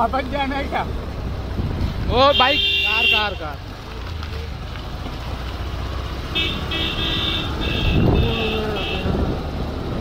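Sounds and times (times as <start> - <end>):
motorcycle engine: 0.0 - 10.0
wind rumble: 1.0 - 2.2
vehicle horn tooting: 2.3 - 3.4, 6.4 - 9.2.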